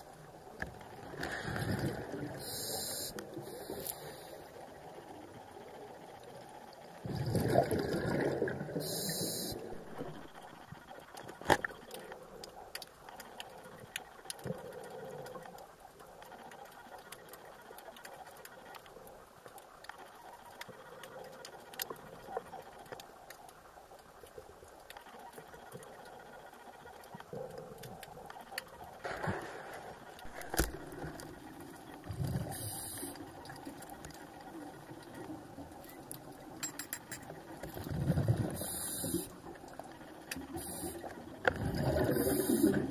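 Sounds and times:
faint steady hiss: 0:00.0 - 0:42.9
regulator bubbles rushing underwater: 0:06.9 - 0:10.6, 0:37.6 - 0:39.8, 0:40.5 - 0:42.9.

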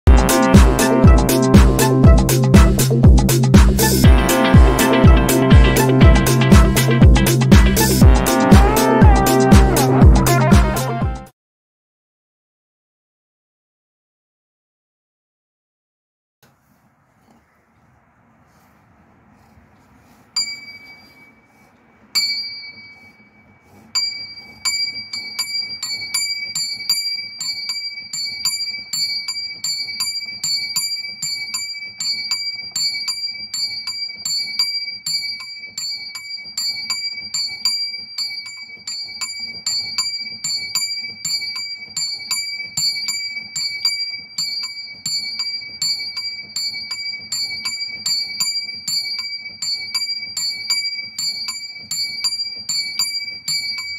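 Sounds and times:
small bell ringing: 0:20.4 - 0:21.6, 0:22.2 - 0:53.9.

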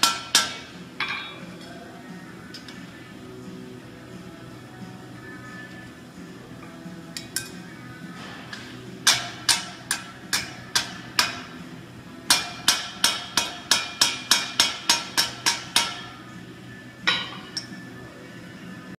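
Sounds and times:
hammer striking iron: 0:00.0 - 0:01.3, 0:08.5 - 0:11.6, 0:12.3 - 0:16.2.

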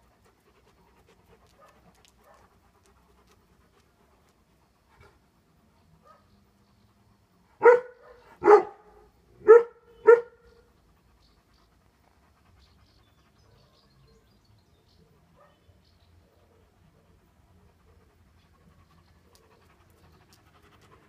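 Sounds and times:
dog barking: 0:06.0 - 0:06.3, 0:07.6 - 0:10.5, 0:15.4 - 0:15.6.

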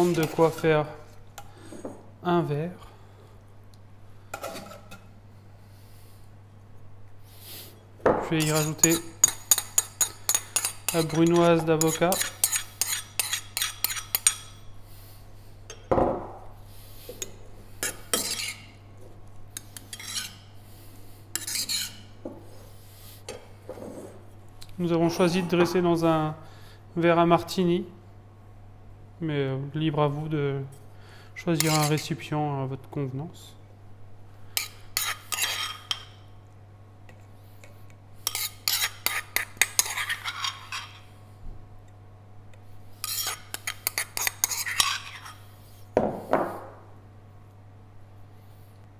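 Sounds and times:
metal spoon scraping a bowl: 0:00.0 - 0:00.8, 0:08.4 - 0:14.6, 0:17.2 - 0:18.8, 0:19.6 - 0:20.5, 0:21.3 - 0:22.1, 0:31.6 - 0:32.1, 0:34.6 - 0:36.1, 0:38.2 - 0:41.1, 0:43.0 - 0:45.5.

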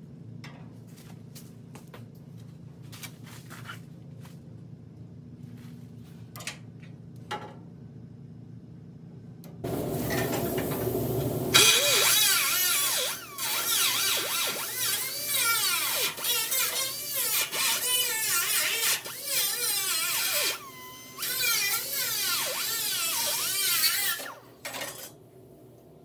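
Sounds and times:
low steady hum: 0:00.0 - 0:13.6, 0:24.2 - 0:26.0
air grinder hiss: 0:09.7 - 0:16.1
grinder whine cutting metal: 0:09.7 - 0:25.2.

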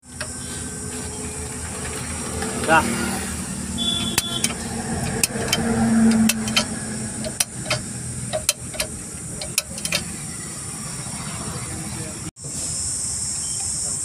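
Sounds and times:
metal clicks and taps: 0:04.0 - 0:10.1.

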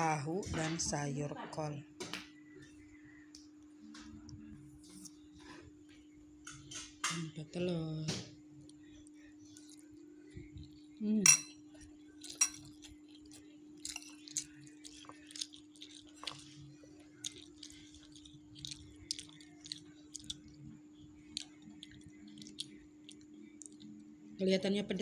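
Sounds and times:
chewing clicks and smacks: 0:11.8 - 0:16.6, 0:17.2 - 0:24.1.

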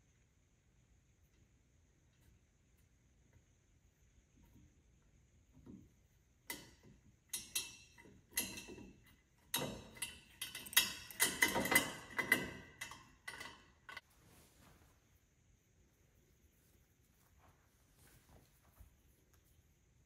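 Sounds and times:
metal parts clicking and clinking: 0:06.5 - 0:14.0.

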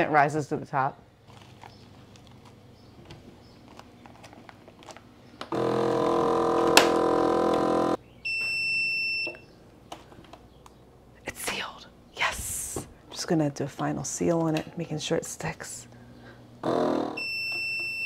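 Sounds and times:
vacuum sealer pump humming: 0:05.4 - 0:08.0.

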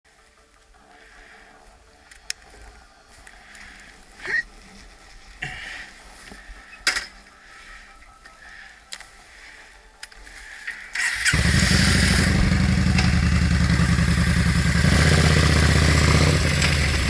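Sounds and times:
soft rustling: 0:00.4 - 0:06.7
sharp clicks and knocks: 0:12.9 - 0:13.2.

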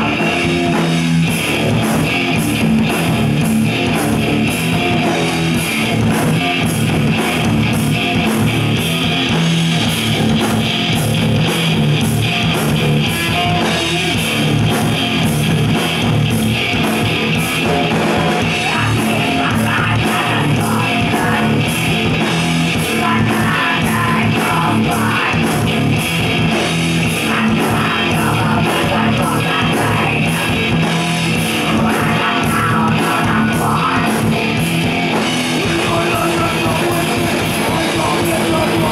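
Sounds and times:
distorted electric guitar: 0:00.0 - 0:38.9
drum kit beat: 0:00.0 - 0:38.9
person singing into microphone: 0:18.4 - 0:21.8, 0:22.8 - 0:25.9, 0:27.0 - 0:30.8, 0:31.4 - 0:34.6, 0:35.6 - 0:38.9.

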